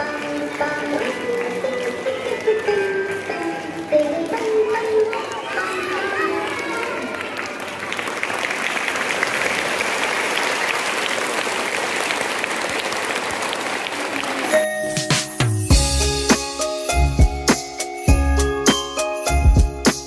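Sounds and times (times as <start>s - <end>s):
crowd applauding: 0.0s - 15.6s
music with sharp beats: 14.9s - 20.0s.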